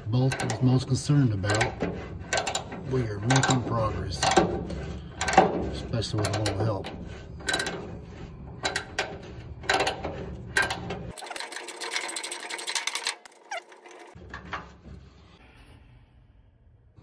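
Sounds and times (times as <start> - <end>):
hand ratchet clicking: 0.0 - 14.2.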